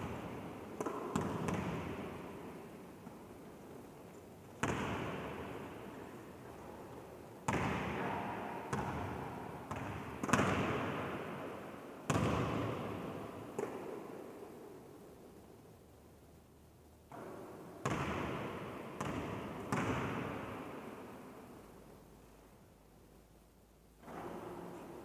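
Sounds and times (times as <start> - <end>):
basketball bouncing on court floor: 0.0 - 2.1, 4.6 - 5.5, 7.5 - 8.0, 8.7 - 11.1, 12.1 - 13.0, 17.1 - 20.4.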